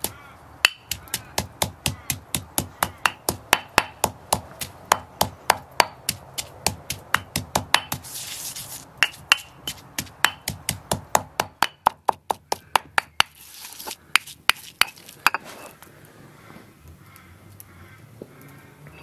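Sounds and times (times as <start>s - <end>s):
stone pestle pounding in mortar: 0.6s - 8.0s, 9.0s - 13.4s
scraping in mortar: 7.8s - 10.1s, 12.7s - 15.8s.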